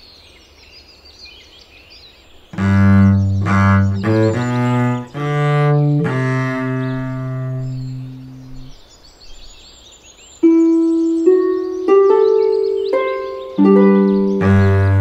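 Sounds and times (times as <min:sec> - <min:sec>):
higher plucked note: 0:02.6 - 0:08.7, 0:10.4 - 0:15.0
low bowed string notes: 0:02.6 - 0:08.7, 0:10.4 - 0:15.0.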